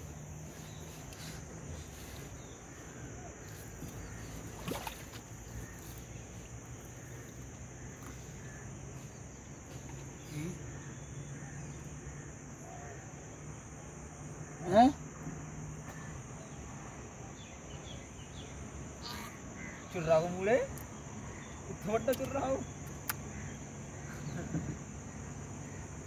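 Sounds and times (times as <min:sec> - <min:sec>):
crickets chirring: 0:00.0 - 0:26.0
fishing net rustling: 0:00.1 - 0:06.5.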